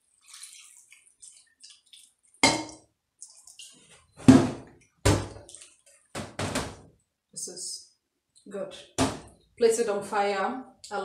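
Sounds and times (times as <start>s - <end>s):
water trickling into pot: 0.0s - 4.2s, 4.8s - 6.1s
jug and pot knocking on countertop: 2.4s - 2.8s.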